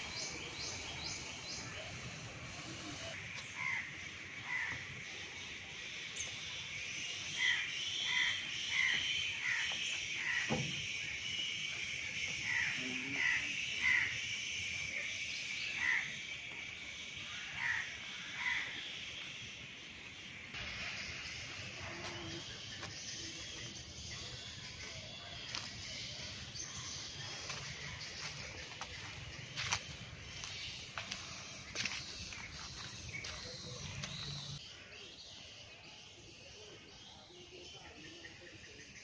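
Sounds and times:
crows cawing: 3.5 - 4.9, 7.4 - 10.6, 12.4 - 14.2, 15.8 - 16.2, 17.3 - 18.8
forest hiss: 10.2 - 24.5.

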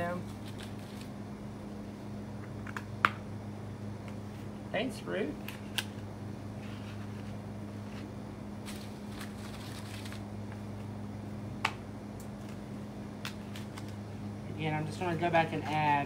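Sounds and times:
steady low hum: 0.0 - 16.0
leaves rustling and clicking: 8.6 - 10.2.

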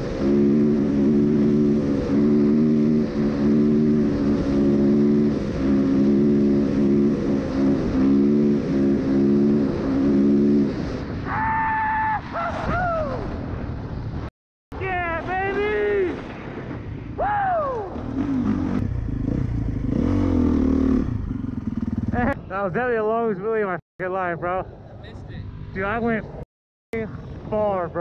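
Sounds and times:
dirt bike engine: 0.0 - 12.4, 17.7 - 23.6.

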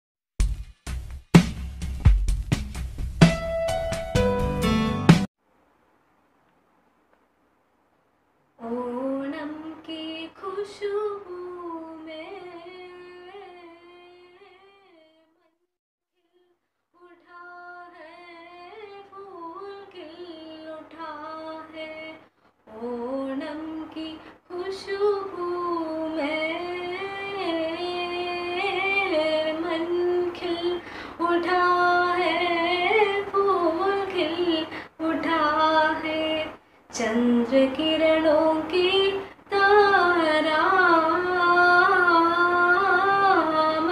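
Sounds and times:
girl singing: 8.6 - 15.6, 16.2 - 43.9.

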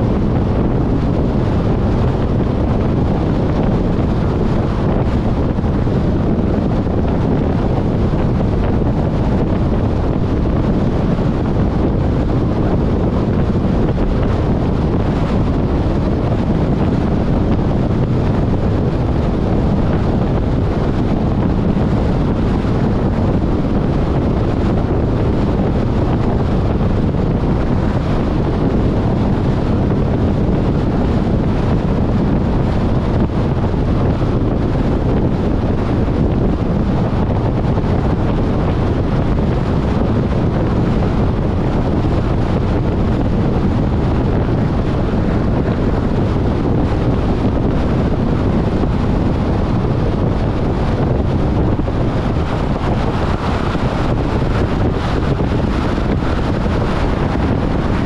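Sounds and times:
car wind and road noise: 0.0 - 58.0.

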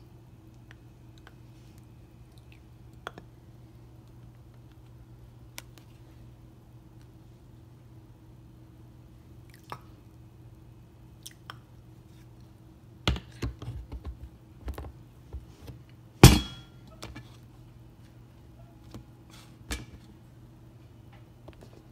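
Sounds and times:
low steady hum: 0.0 - 21.9
loud ringing clunk: 16.2 - 16.8.

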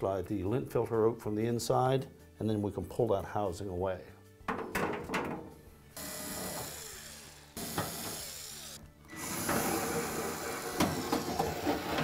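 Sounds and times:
cordless drill running: 6.0 - 11.0.

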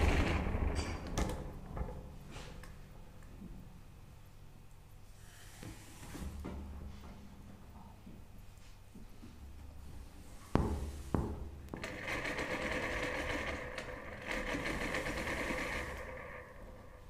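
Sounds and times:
sewing machine stitching: 0.0 - 1.3, 11.8 - 17.0.

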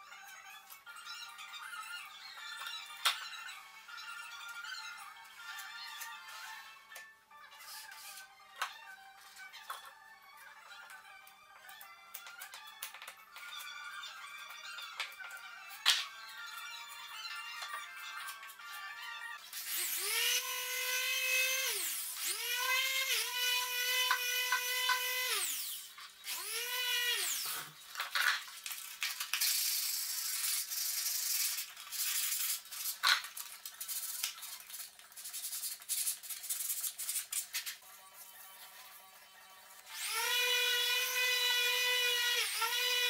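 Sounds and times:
power tool motor whining: 19.4 - 28.0, 39.8 - 43.0.

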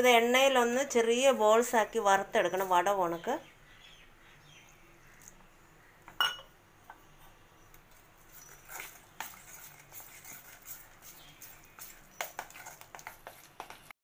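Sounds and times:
spoon knocking bowl: 6.1 - 6.5
wet batter mixing: 7.7 - 14.0
spoon scraping metal bowl: 8.3 - 13.8.

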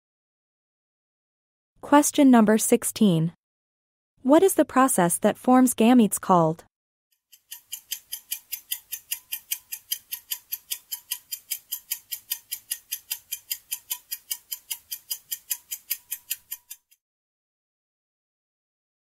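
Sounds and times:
rapid clock ticks: 7.3 - 17.0.

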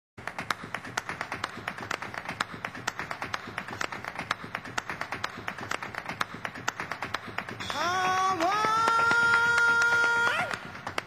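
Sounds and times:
rapid percussive taps and claps: 0.2 - 11.0.

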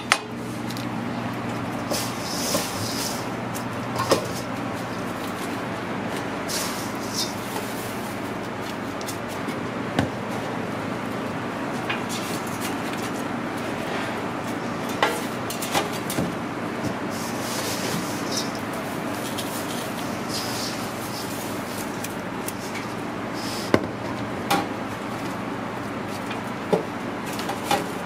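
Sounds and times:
kitchen mechanical hum: 0.0 - 28.0.

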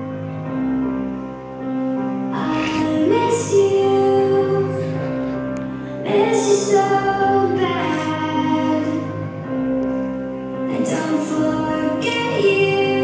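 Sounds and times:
woman singing: 2.4 - 5.4, 6.0 - 9.2, 10.7 - 13.0.

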